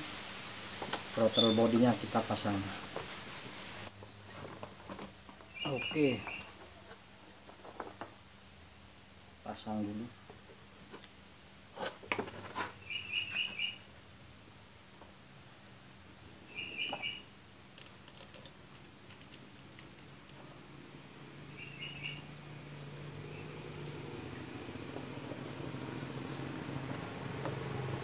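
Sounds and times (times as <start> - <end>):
small bird chirping: 1.2 - 1.8, 5.5 - 6.6, 12.8 - 13.9, 16.4 - 17.8, 20.9 - 24.6.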